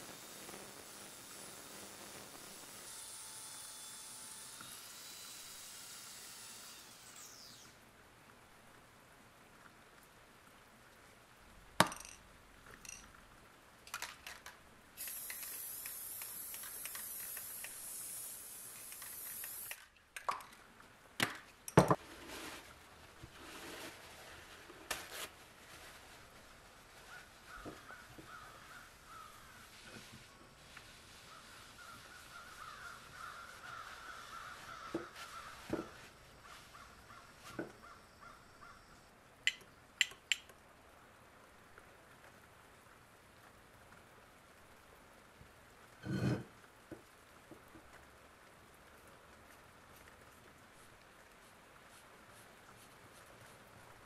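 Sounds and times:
aerosol spray hiss: 0.0 - 2.9, 15.0 - 19.8
paper towel rustling: 22.0 - 27.6
sharp clicks: 39.5 - 40.6.

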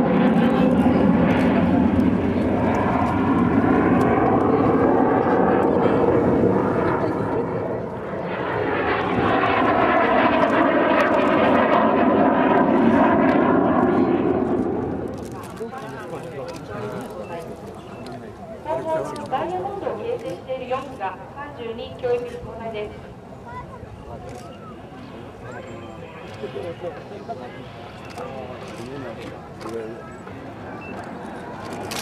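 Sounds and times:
jet engines roaring overhead: 0.0 - 32.0.

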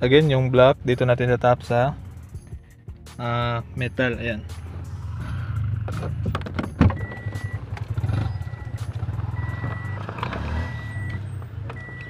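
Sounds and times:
car warning chime beeping: 6.7 - 12.0.

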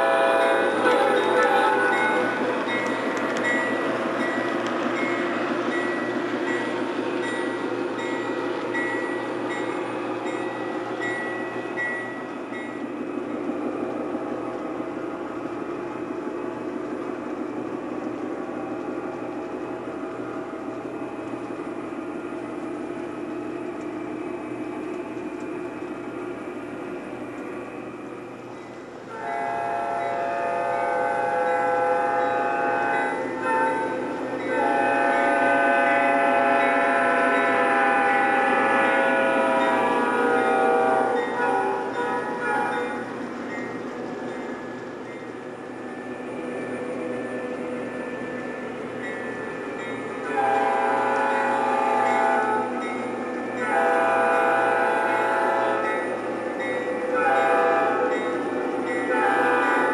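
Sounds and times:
model train horn: 0.0 - 2.0, 29.1 - 33.9, 34.5 - 43.0, 50.2 - 52.8, 53.6 - 56.0, 57.2 - 58.1, 59.1 - 59.9
model train bell ringing: 0.0 - 12.9, 30.8 - 35.4, 41.1 - 45.4, 49.0 - 50.3, 51.3 - 54.1, 55.7 - 59.9
model train running rumble: 0.0 - 59.9.

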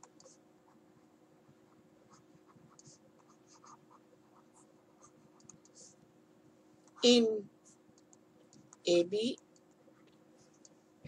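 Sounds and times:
stylus scratching on tablet: 0.0 - 6.0
low steady hum: 0.0 - 11.0.

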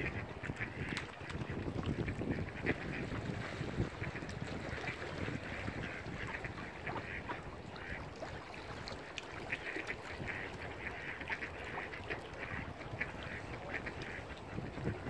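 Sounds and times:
ducks quacking: 0.0 - 8.3, 9.4 - 15.0
wind rumble on microphone: 0.0 - 15.0.

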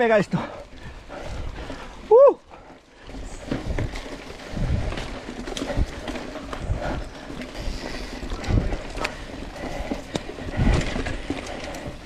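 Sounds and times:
bike rolling over rough trail: 0.0 - 12.0
wind buffeting microphone: 3.0 - 12.0
bike knocks and rattles: 3.2 - 7.0, 7.6 - 12.0.

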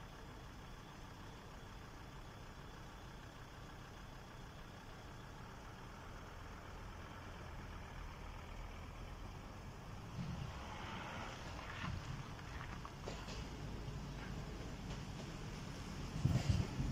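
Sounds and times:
road vehicle engine rumble: 0.0 - 16.9.

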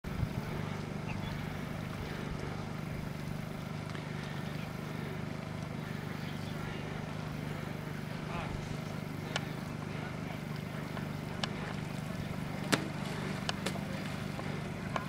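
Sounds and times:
low mechanical hum: 0.0 - 15.0.

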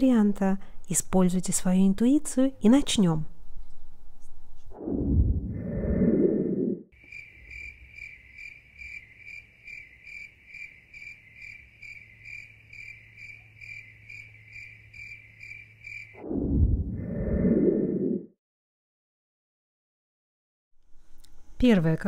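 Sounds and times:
low-pitched sound: 4.7 - 6.8, 16.2 - 18.3
cricket chirping: 7.0 - 16.2.

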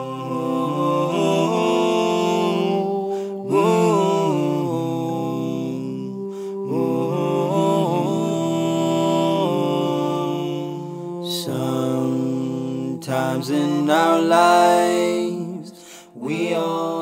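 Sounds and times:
slow vocal chant: 0.0 - 17.0.

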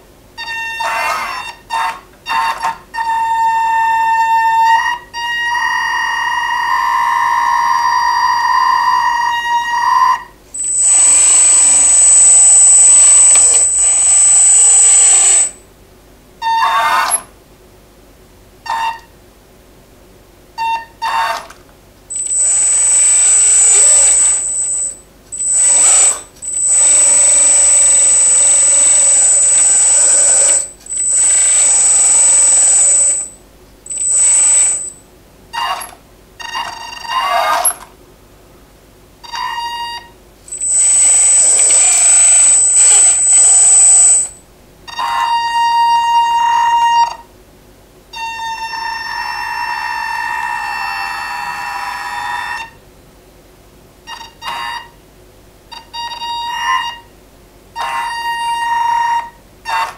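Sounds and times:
low electric motor whine: 10.3 - 15.7, 22.0 - 35.2, 39.4 - 44.5
hydraulic pump whine: 10.6 - 15.6, 22.1 - 35.0, 40.4 - 44.4.

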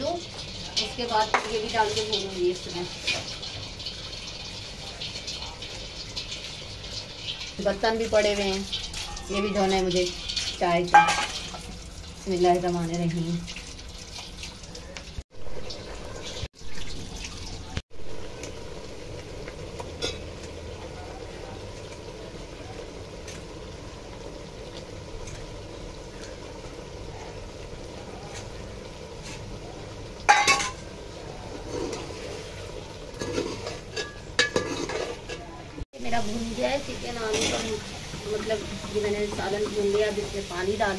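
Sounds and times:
ladle stirring in a metal pot: 0.0 - 17.5, 30.3 - 35.8.

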